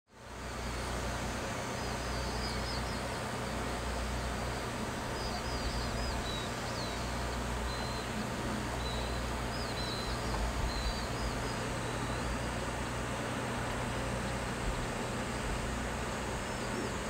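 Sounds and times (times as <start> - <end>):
small birds chirping: 1.7 - 13.0, 14.9 - 17.0.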